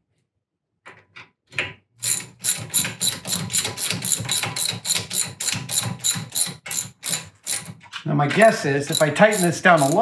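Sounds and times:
ratchet wrench clicking: 8.9 - 10.0.

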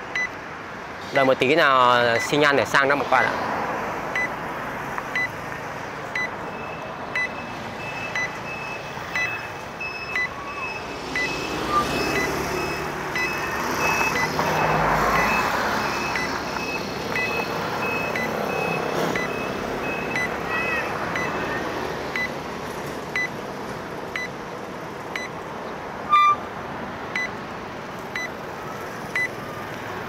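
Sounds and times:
road traffic: 0.0 - 30.0
vehicle passing: 2.4 - 30.0
higher electronic beeps: 6.2 - 22.3, 26.1 - 26.4
short electronic signal pips: 26.1 - 26.4.

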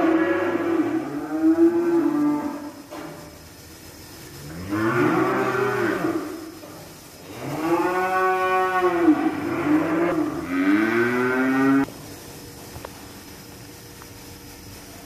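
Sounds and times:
cows mooing: 0.0 - 2.8, 4.4 - 6.6, 7.3 - 11.9.

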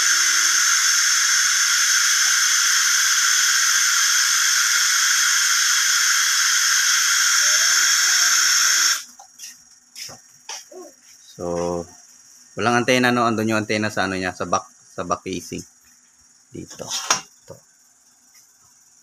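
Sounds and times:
radio static hiss: 0.0 - 10.6.

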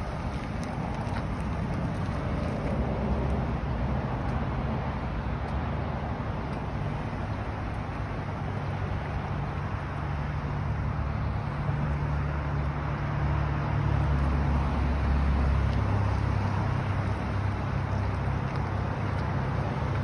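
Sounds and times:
low vehicle rumble: 0.0 - 20.0.

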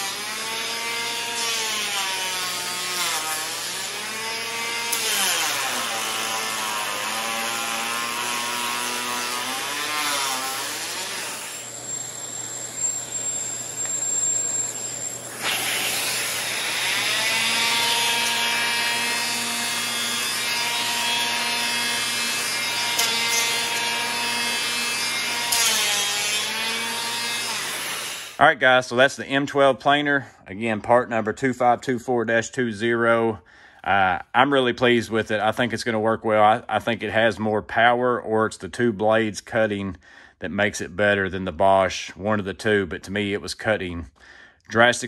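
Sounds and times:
hand planer whining on wood: 0.0 - 28.4.

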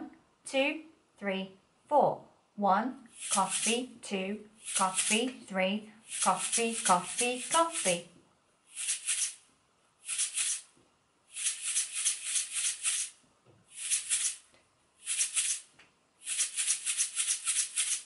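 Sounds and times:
sprinkles tub shaker rattling: 3.2 - 3.8, 4.6 - 5.3, 6.1 - 8.0, 8.8 - 9.4, 10.0 - 10.6, 11.3 - 13.1, 13.8 - 14.4, 15.0 - 15.6, 16.2 - 18.0.

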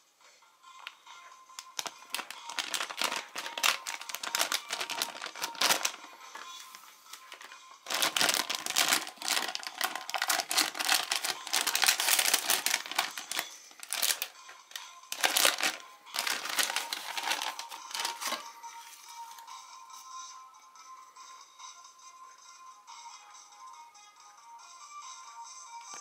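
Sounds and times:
foil packet crinkling and tearing: 1.6 - 14.3, 15.1 - 18.4.

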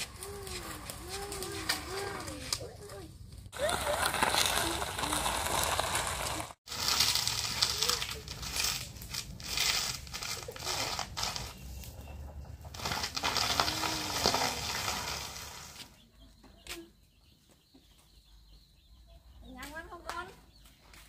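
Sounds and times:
crinkling rustle: 0.0 - 12.0, 12.6 - 15.9.

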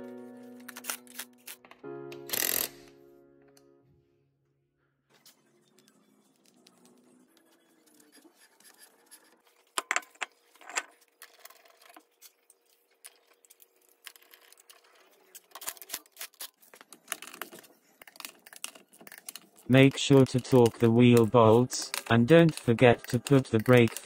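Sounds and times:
metallic clicks and scrapes: 7.8 - 24.0.

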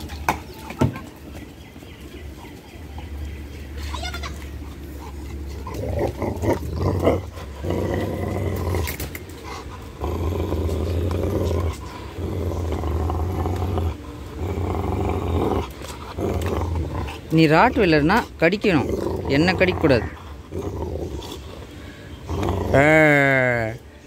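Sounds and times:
dog growling in play: 4.5 - 23.8.

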